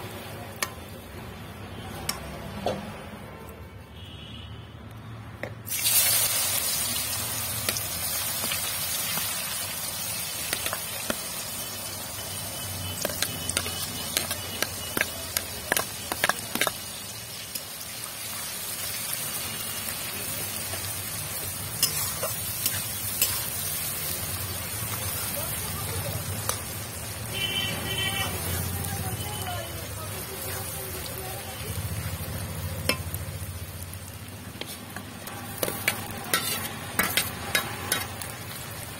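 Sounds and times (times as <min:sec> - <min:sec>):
onions sizzling in oil: 0:05.6 - 0:38.9
metal spoon clinking on pan: 0:13.0 - 0:16.8, 0:21.8 - 0:23.5, 0:32.8 - 0:33.2, 0:35.6 - 0:38.2.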